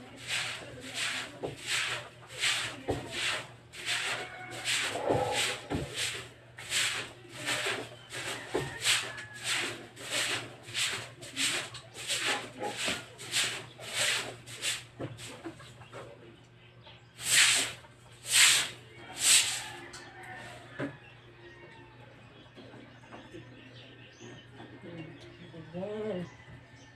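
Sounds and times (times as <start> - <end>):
broom scrubbing wet concrete: 0.0 - 15.6, 17.2 - 19.8.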